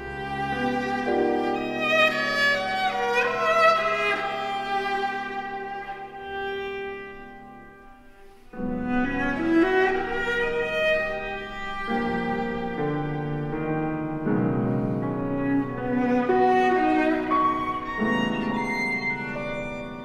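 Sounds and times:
piano: 0:00.0 - 0:20.0
viola: 0:00.0 - 0:20.0.

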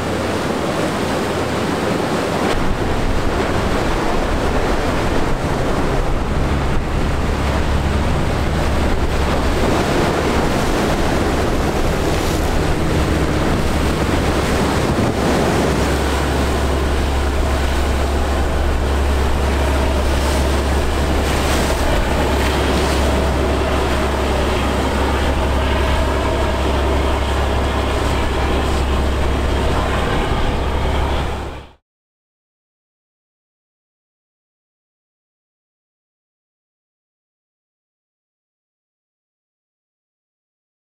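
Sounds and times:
wind buffeting microphone: 0:00.0 - 0:31.7
boat engine droning: 0:00.0 - 0:31.8
waves and boat wake: 0:00.0 - 0:31.8.

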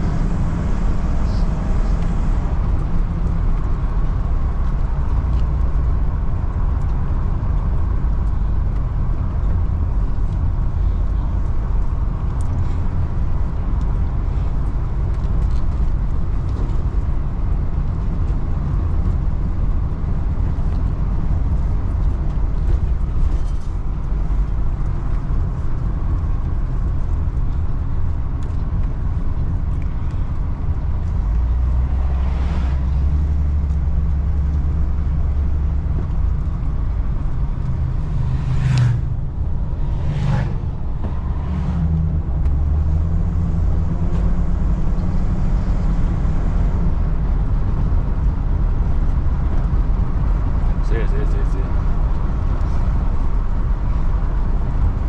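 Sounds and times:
road noise: 0:00.0 - 0:55.0
vehicle engine rumble: 0:00.0 - 0:55.0
whooshes: 0:37.9 - 0:42.0.

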